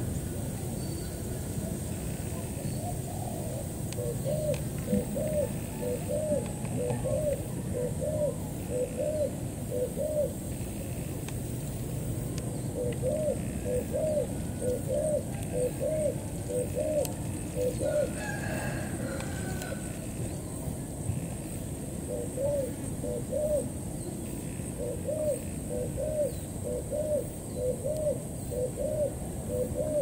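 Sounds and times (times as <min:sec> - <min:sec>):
dove cooing: 0:02.3 - 0:10.5, 0:12.6 - 0:20.0, 0:22.0 - 0:23.7, 0:24.6 - 0:30.0.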